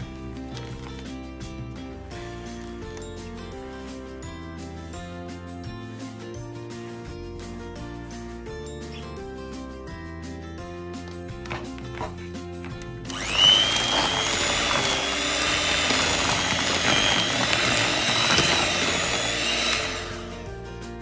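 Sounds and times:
beaters churning batter: 11.4 - 20.5
electric hand mixer whirring: 13.0 - 20.5.

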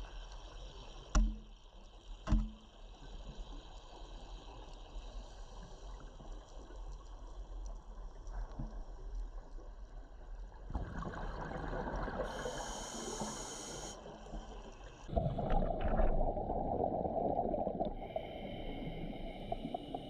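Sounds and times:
underwater sea hiss: 12.2 - 14.6, 17.4 - 20.0.

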